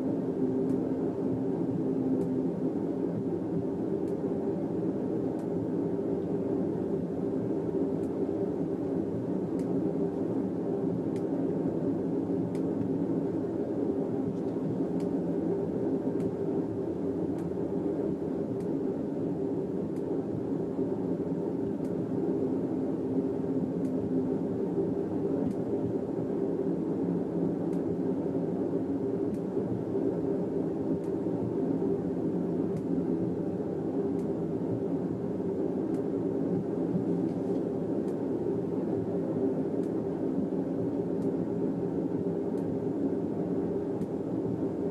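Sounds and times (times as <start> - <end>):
low rumbling noise: 0.0 - 44.9
faint irregular clicks: 2.1 - 2.4, 4.0 - 4.4, 5.3 - 5.6, 8.0 - 8.2, 9.2 - 10.3, 11.0 - 11.4, 12.5 - 13.0, 14.3 - 15.2, 16.2 - 16.4, 17.3 - 17.6, 18.5 - 18.8, 21.6 - 22.1, 23.8 - 24.2, 25.4 - 26.1, 27.6 - 27.9, 29.3 - 29.8, 30.9 - 31.3, 32.7 - 33.0, 34.0 - 34.4, 35.8 - 38.3, 39.8 - 40.0, 42.5 - 42.8, 44.0 - 44.6.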